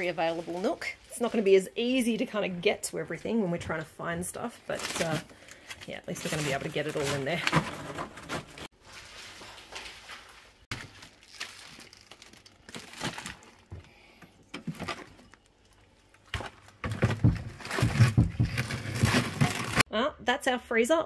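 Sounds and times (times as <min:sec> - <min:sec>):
plastic packs rustling: 0:00.0 - 0:02.3, 0:04.2 - 0:19.9
knocks and thumps: 0:16.3 - 0:19.8.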